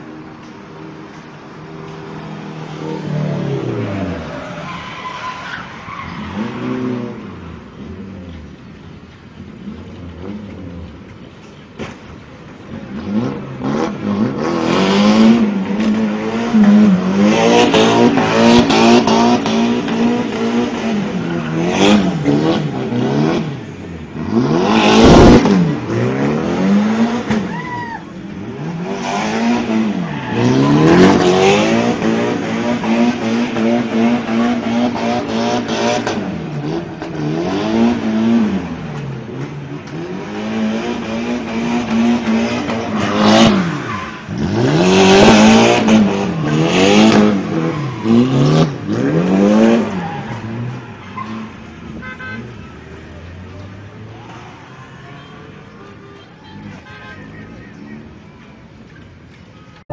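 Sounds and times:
tyres squealing and skidding: 2.1s - 8.2s, 12.7s - 59.8s
car engine revving high: 12.9s - 27.5s, 28.5s - 50.7s.

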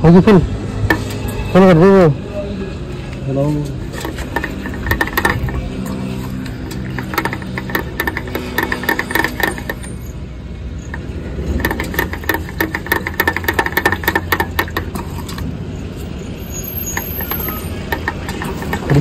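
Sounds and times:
fuel dispenser clicking and rattling: 3.8s - 10.0s, 10.8s - 15.6s, 16.9s - 19.0s.

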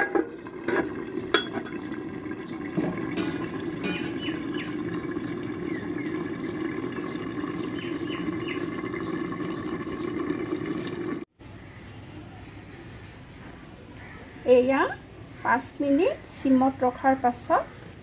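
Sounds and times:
curry bubbling in covered pan: 0.0s - 11.3s.

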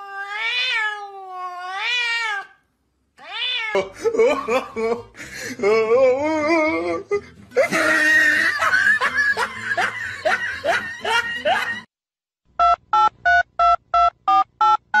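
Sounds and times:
loud laughing: 3.7s - 11.9s.

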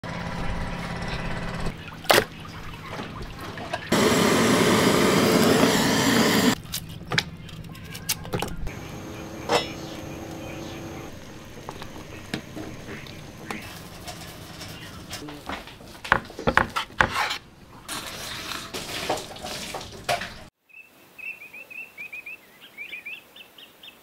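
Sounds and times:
loud rushing hiss: 3.9s - 6.6s, 8.7s - 13.6s.

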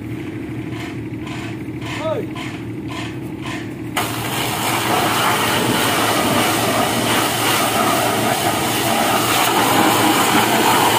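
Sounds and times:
pressure washer spraying water: 4.0s - 10.9s.

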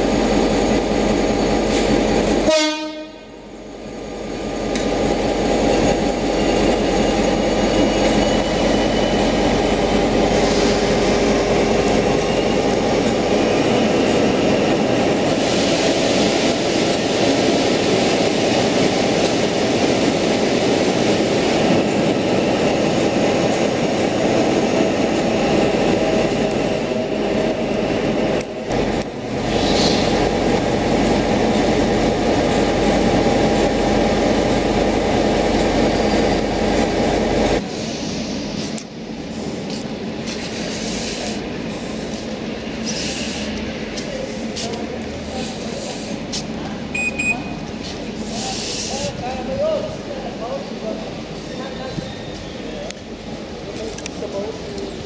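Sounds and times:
train rumble and wheel noise: 0.0s - 55.0s.

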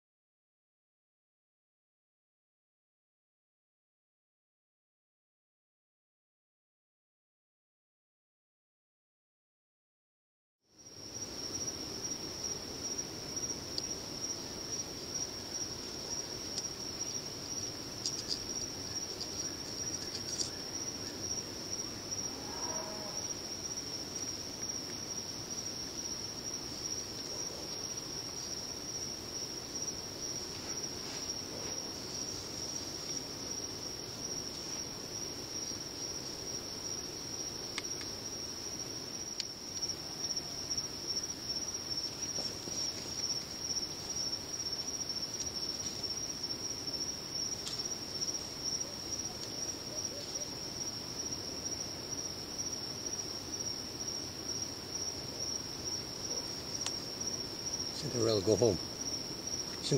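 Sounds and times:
insects chirring: 10.7s - 59.9s
low background noise: 10.7s - 59.9s
faint ticks: 56.8s - 57.0s.

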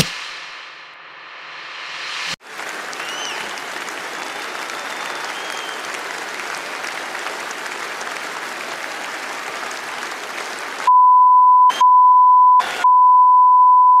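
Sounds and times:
audience applauding: 2.4s - 10.9s
high test tone beep: 10.9s - 14.0s.

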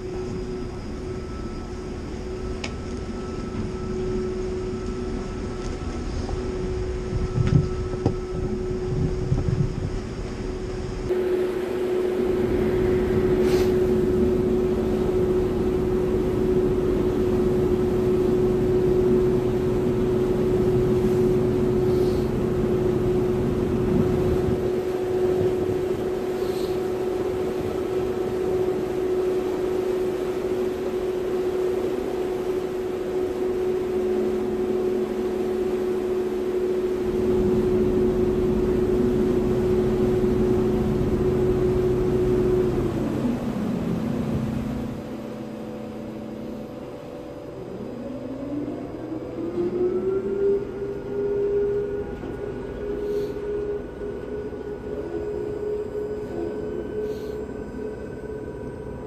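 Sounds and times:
wind rumble on microphone: 0.0s - 45.2s
ferry engines humming: 0.0s - 59.0s.

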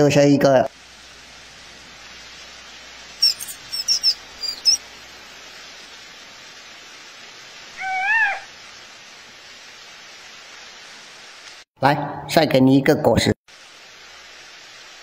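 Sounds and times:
steady outdoor hiss: 0.0s - 15.0s
short high chirps: 3.2s - 4.8s
rising and falling call: 3.2s - 4.9s, 7.7s - 8.6s.

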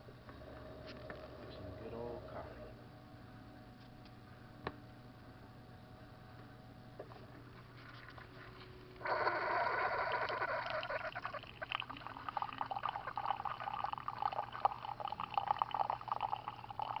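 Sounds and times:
coffee streaming into a mug: 7.0s - 17.0s
coffee brewer starting up: 9.0s - 13.4s.

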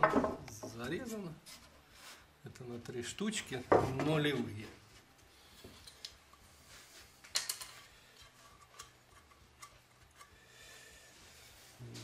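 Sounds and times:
wooden blocks clicking and knocking: 0.0s - 0.9s.

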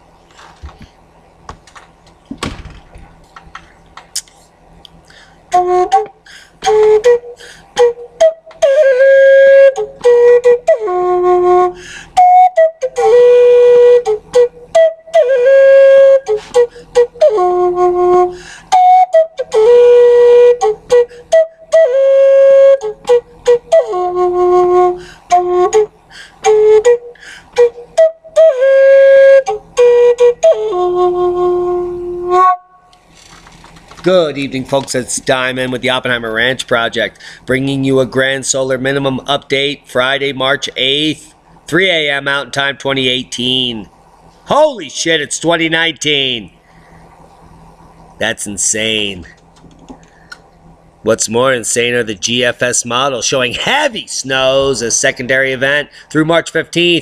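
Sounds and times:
woodwind melody: 5.5s - 33.0s.

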